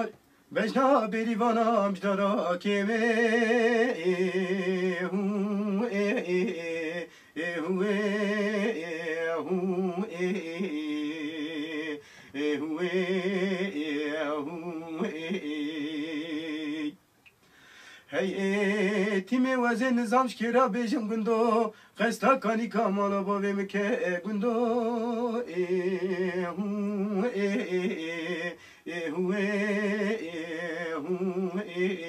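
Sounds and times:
man singing unaccompanied: 0:00.0 - 0:17.1, 0:18.0 - 0:32.0
man breathing: 0:07.1 - 0:07.4, 0:12.0 - 0:12.4, 0:17.4 - 0:18.1, 0:21.7 - 0:22.0, 0:28.6 - 0:28.9.

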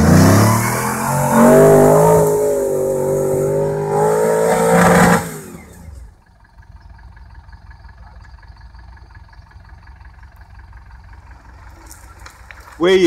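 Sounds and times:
engine revving hard: 0:00.0 - 0:06.0.

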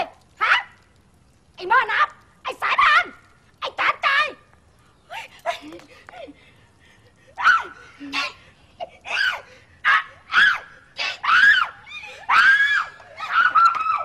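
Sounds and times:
shrill squealing cries: 0:09.1 - 0:14.0.

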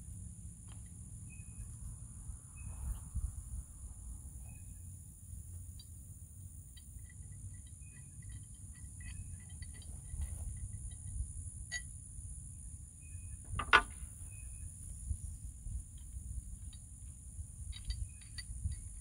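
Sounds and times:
insects droning: 0:00.0 - 0:19.0
low outdoor rumble: 0:00.0 - 0:19.0
faint chirps: 0:00.8 - 0:11.1, 0:11.7 - 0:15.5.

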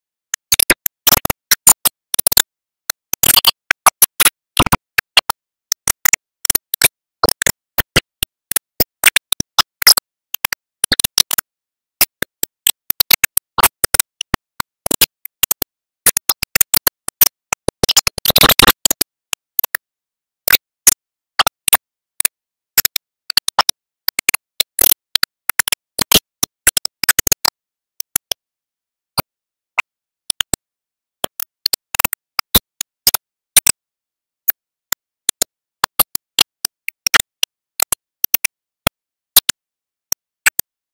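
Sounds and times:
sharp clicks and crackles: 0:00.0 - 0:28.5, 0:29.1 - 0:40.9.

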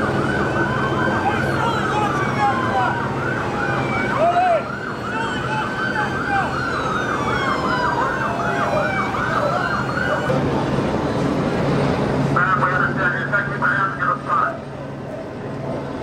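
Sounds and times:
siren yelping: 0:00.0 - 0:11.3
low siren whoop: 0:00.0 - 0:11.4.

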